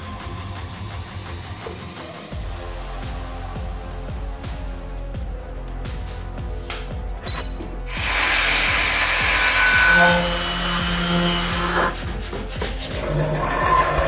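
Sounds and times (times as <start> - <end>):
background music: 0.0 - 14.0
wood being sanded: 7.8 - 14.0.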